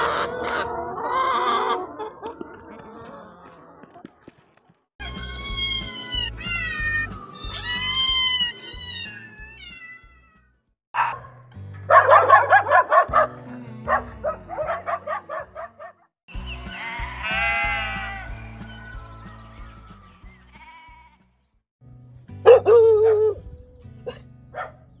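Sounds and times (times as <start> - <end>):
background music: 5.0 - 9.7, 11.0 - 25.0
cat meowing: 5.0 - 10.5
dogs barking: 11.0 - 16.1, 22.4 - 23.4, 24.0 - 25.0.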